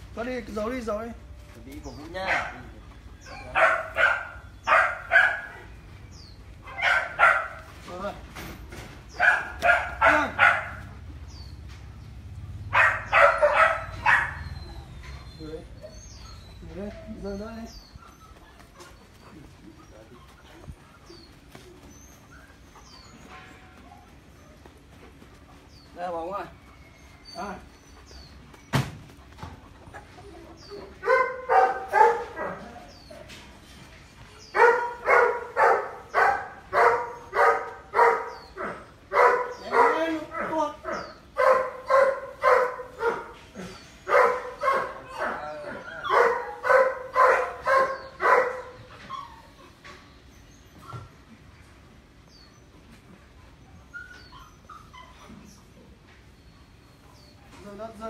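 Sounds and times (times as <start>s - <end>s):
dog barking: 2.2s - 2.7s, 3.3s - 5.7s, 6.6s - 7.7s, 9.2s - 10.9s, 12.7s - 14.6s, 31.0s - 32.9s, 34.5s - 48.9s.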